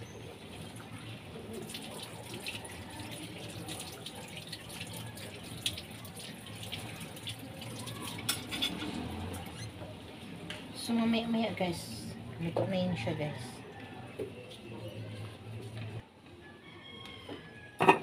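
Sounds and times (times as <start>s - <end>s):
stew bubbling and crackling: 0.0s - 10.2s.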